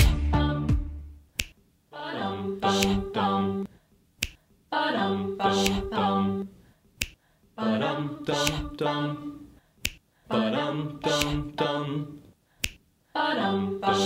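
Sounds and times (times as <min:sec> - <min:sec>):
wordless a cappella singing: 0:00.0 - 0:01.0, 0:01.9 - 0:06.7, 0:07.5 - 0:14.0
finger snap: 0:01.3 - 0:01.6, 0:02.6 - 0:03.1, 0:04.2 - 0:04.4, 0:05.5 - 0:06.0, 0:07.0 - 0:07.2, 0:08.2 - 0:08.8, 0:09.8 - 0:10.1, 0:11.0 - 0:11.6, 0:12.6 - 0:12.9.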